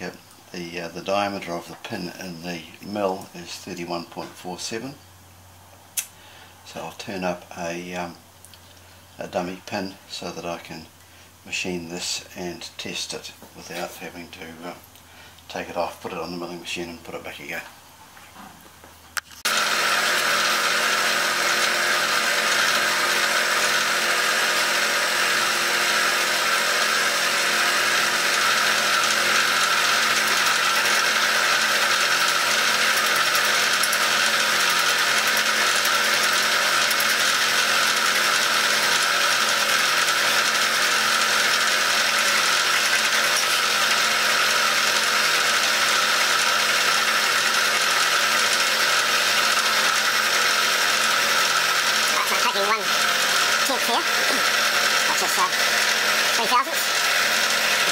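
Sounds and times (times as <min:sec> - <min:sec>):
milling machine cutting metal: 0:19.4 - 0:57.9.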